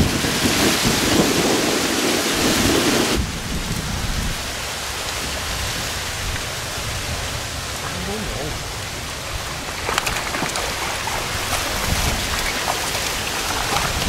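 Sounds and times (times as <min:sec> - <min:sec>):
low rumbling: 0:00.0 - 0:14.0
steady rain hissing: 0:00.0 - 0:14.0.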